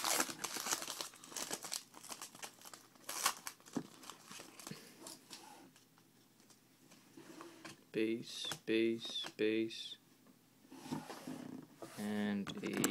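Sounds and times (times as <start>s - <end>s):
foil wrapper crinkling and tearing: 0.0s - 4.7s.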